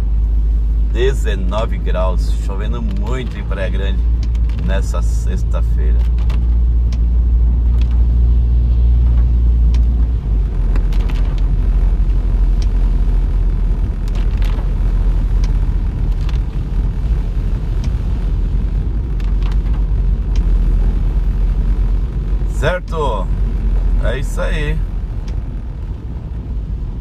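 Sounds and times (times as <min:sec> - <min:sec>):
car engine and road rumble: 0:00.0 - 0:27.0.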